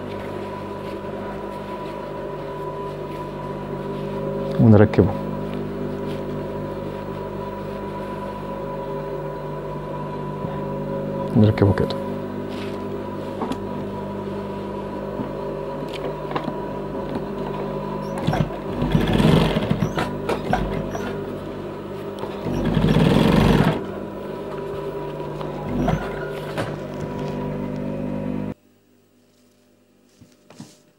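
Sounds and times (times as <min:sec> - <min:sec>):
sewing machine motor humming: 0:17.2 - 0:21.5, 0:22.1 - 0:23.9, 0:25.2 - 0:27.7
rapid needle stitching: 0:18.2 - 0:20.1, 0:22.4 - 0:23.8.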